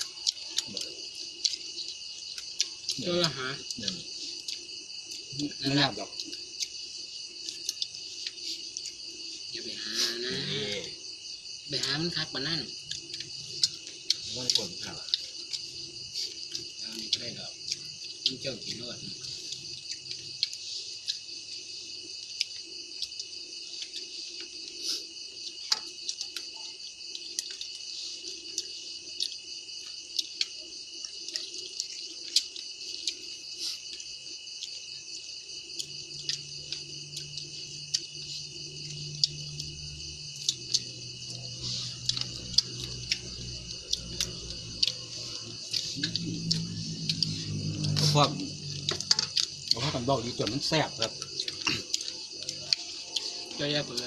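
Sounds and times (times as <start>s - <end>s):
crickets and insects chirping: 0.0s - 54.0s.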